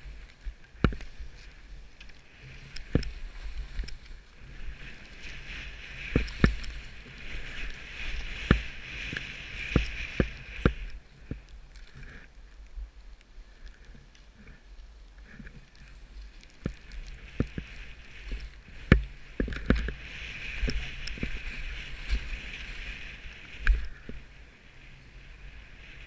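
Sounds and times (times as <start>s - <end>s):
skis scraping over snow: 0.0s - 26.0s
skis knocking on bumps: 0.1s - 11.5s, 15.2s - 24.2s.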